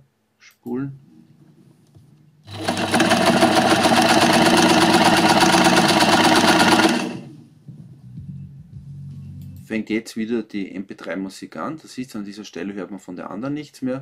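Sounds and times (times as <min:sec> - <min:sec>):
sewing machine stitching: 0:02.5 - 0:07.4.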